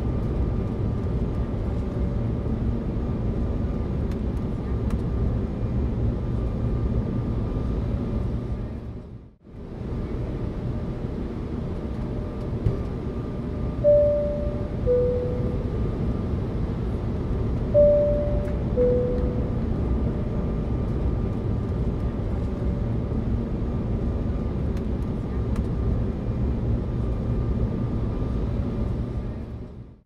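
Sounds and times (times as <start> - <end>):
aircraft cabin rumble: 0.0 - 29.9
two-tone seatbelt chime: 13.9 - 15.7, 17.8 - 19.6.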